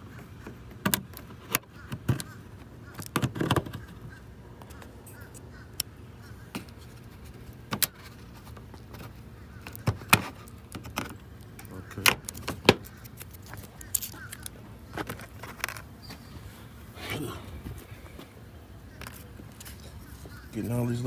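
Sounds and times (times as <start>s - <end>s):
plastic clips clicking and snapping: 9.6s - 15.8s.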